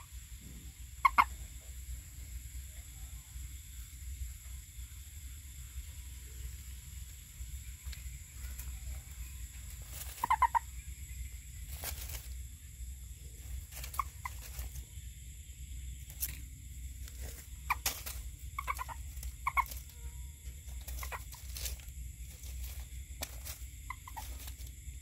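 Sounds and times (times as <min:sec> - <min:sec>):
frogs croaking: 0:00.0 - 0:25.0
faint clicks: 0:07.8 - 0:08.7.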